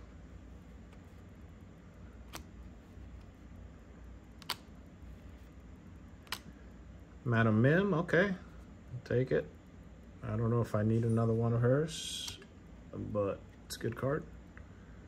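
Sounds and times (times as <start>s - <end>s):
faint low room hum: 0.0s - 15.0s
card snaps: 4.4s - 4.7s, 6.3s - 6.5s.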